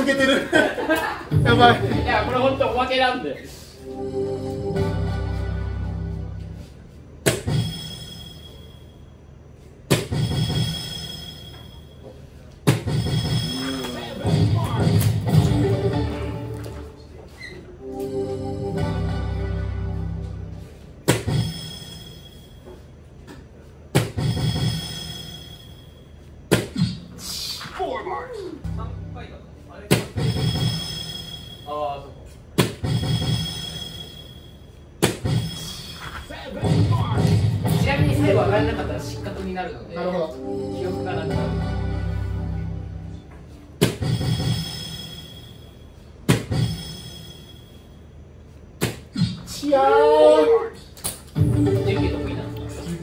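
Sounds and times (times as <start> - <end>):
faint background music: 0.0 - 22.8, 23.5 - 47.9, 48.8 - 53.0
darts hitting dartboard: 9.9 - 10.5, 21.1 - 21.5, 32.6 - 33.1, 35.0 - 35.5, 43.8 - 44.5.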